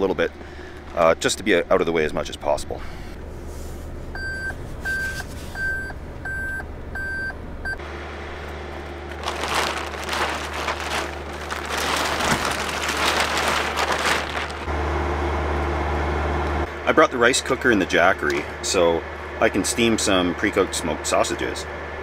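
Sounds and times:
car warning chime beeping: 0:05.6 - 0:07.8
tarp rustling: 0:09.0 - 0:14.7.

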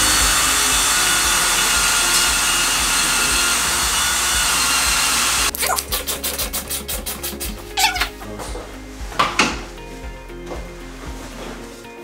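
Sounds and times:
cordless drill boring into wood: 0:00.0 - 0:05.6.

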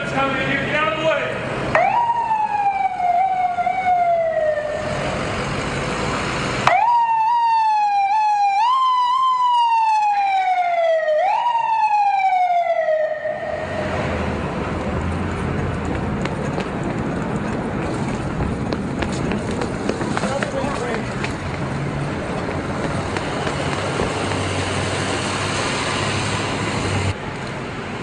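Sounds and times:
ambulance siren wailing: 0:01.7 - 0:05.2, 0:06.6 - 0:14.1.

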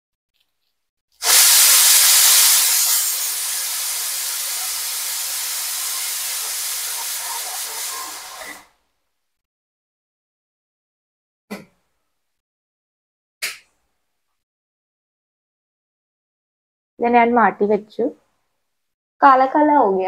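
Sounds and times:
pressure cooker whistle hissing: 0:01.2 - 0:08.7.

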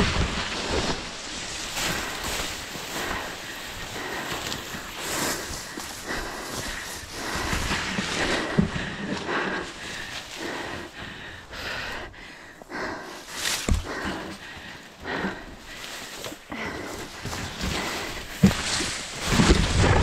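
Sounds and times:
grass rustling: 0:00.0 - 0:20.0.

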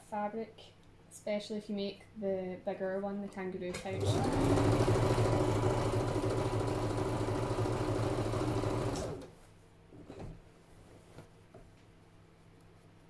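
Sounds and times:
electric sewing machine stitching: 0:03.7 - 0:09.3.

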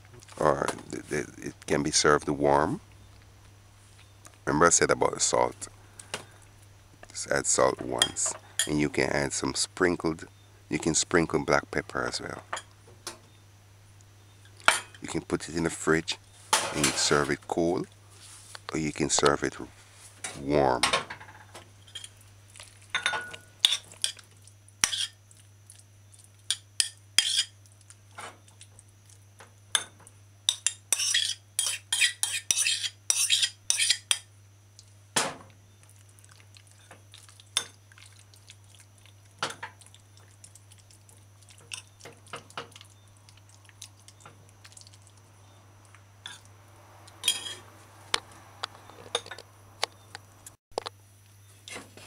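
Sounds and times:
spoon clinking on ceramic bowl: 0:23.0 - 0:23.8, 0:47.2 - 0:47.6.

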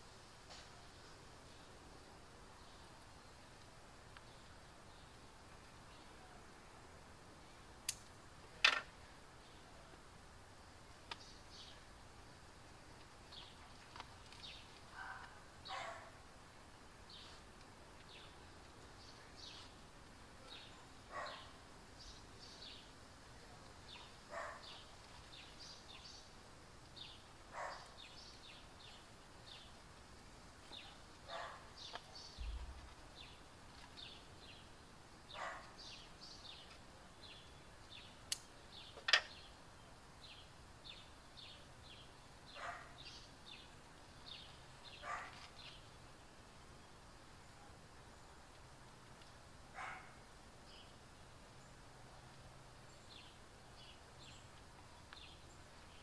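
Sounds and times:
small birds chirping: 0:00.0 - 0:56.0
dog barking: 0:15.0 - 0:16.2, 0:21.1 - 0:21.5, 0:24.3 - 0:24.7, 0:27.6 - 0:27.9, 0:31.3 - 0:31.7, 0:35.4 - 0:35.8, 0:42.6 - 0:43.0, 0:45.0 - 0:45.4, 0:49.8 - 0:50.2
sharp clicks: 0:38.3 - 0:39.3.

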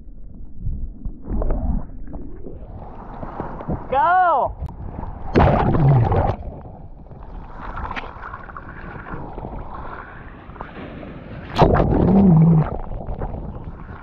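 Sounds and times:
seawater sloshing and splashing: 0:02.6 - 0:04.0, 0:04.8 - 0:14.0
rush of water: 0:02.7 - 0:14.0.

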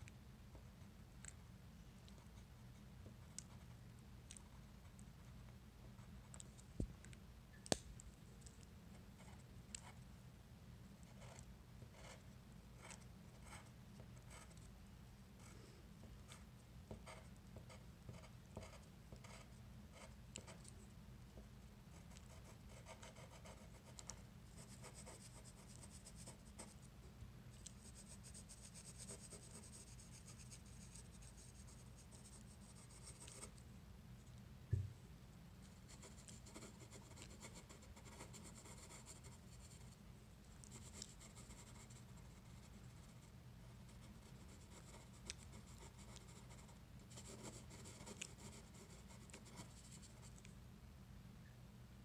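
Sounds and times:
pencil scratching on paper: 0:16.3 - 0:20.6, 0:22.0 - 0:26.8, 0:27.7 - 0:33.5, 0:40.7 - 0:43.3, 0:44.0 - 0:50.2
low thump: 0:34.7 - 0:35.0.

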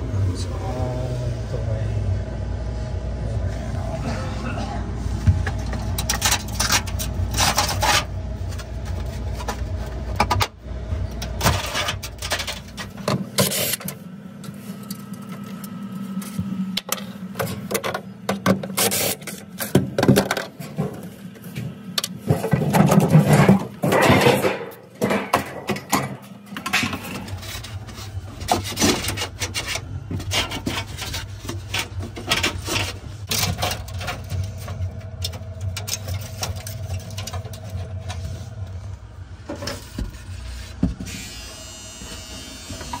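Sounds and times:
low hum: 0:00.0 - 0:18.4, 0:19.3 - 0:43.0.

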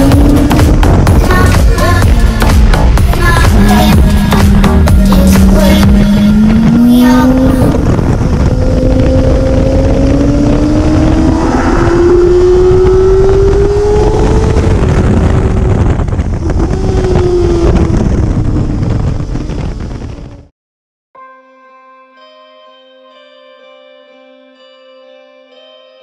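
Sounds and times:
motorcycle engine accelerating: 0:00.0 - 0:20.5
wind on microphone: 0:00.0 - 0:20.5.

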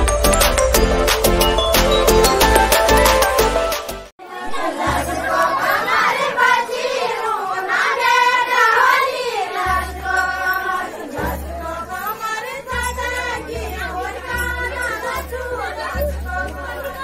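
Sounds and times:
women singing in unison: 0:04.2 - 0:17.0.

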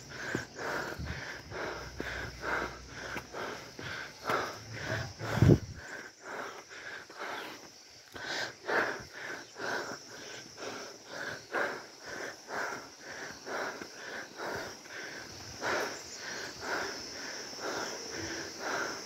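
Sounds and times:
footsteps on dirt track: 0:00.0 - 0:08.3
man breathing hard: 0:00.0 - 0:19.0.

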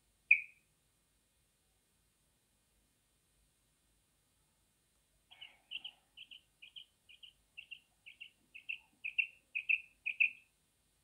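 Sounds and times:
quail calling: 0:00.3 - 0:00.6, 0:05.3 - 0:10.5.

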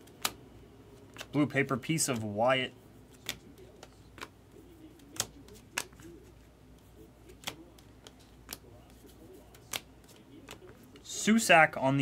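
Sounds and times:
trading cards snapping: 0:00.0 - 0:00.4, 0:01.0 - 0:01.4, 0:03.1 - 0:06.3, 0:07.3 - 0:11.0
faint background noise: 0:00.0 - 0:12.0.

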